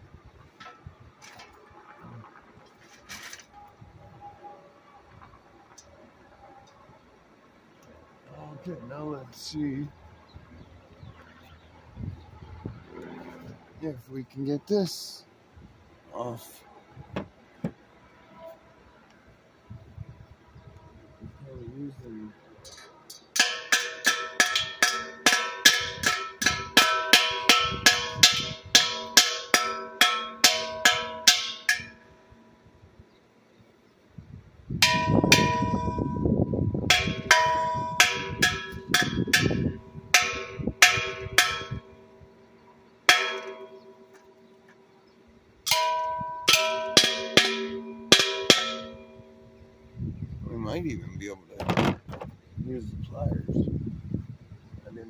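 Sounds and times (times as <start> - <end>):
hammer ringing on metal: 23.4 - 32.2, 34.8 - 36.3, 36.9 - 42.0, 43.1 - 44.2, 45.7 - 49.6.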